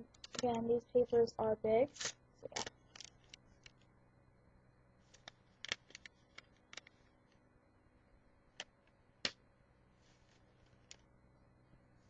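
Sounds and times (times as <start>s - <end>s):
paper rustling and clicking: 0.1s - 0.5s, 2.0s - 3.8s, 5.1s - 7.1s.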